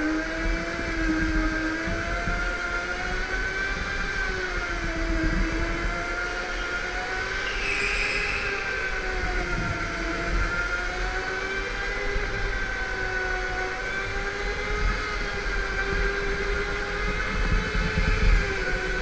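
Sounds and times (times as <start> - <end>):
go-kart engine whine: 0.0 - 19.0.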